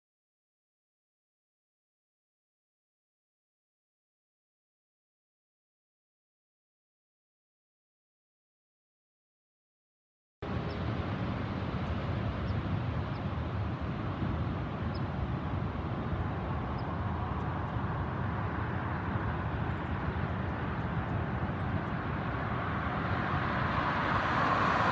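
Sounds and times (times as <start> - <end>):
highway traffic rumble: 10.4 - 24.9
car approaching: 15.5 - 24.9.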